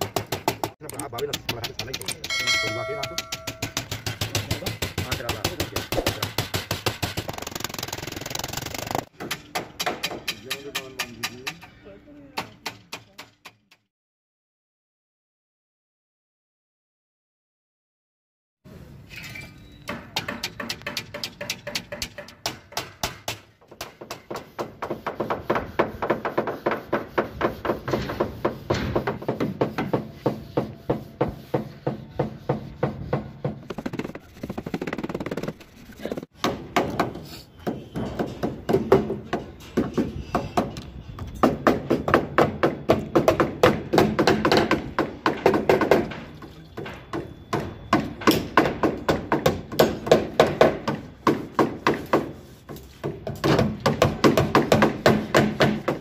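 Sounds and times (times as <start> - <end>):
hammer blows on metal: 2.2 - 6.9.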